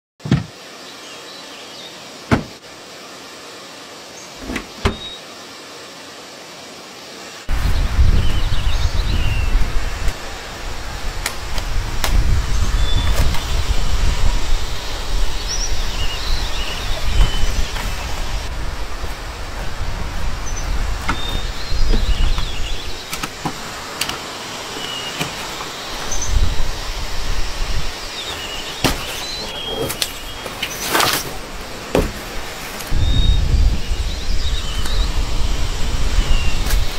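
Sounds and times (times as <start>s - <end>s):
car rear door knocks and clunks: 0.2s - 0.5s, 2.3s - 2.6s, 4.4s - 5.1s, 17.1s - 17.9s, 31.9s - 32.2s
outdoor ambience: 0.2s - 36.9s.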